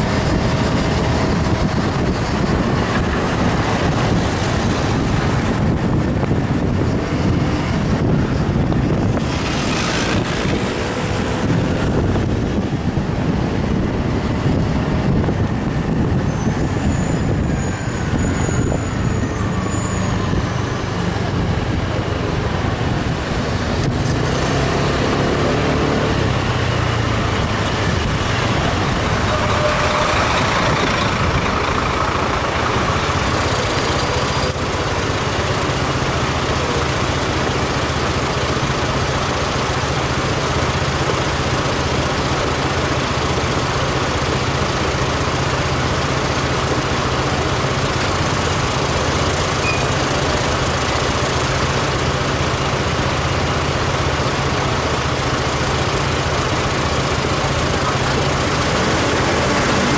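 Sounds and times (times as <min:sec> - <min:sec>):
wind and road noise: 0:00.0 - 0:59.9
motorbike engine: 0:20.6 - 0:59.9.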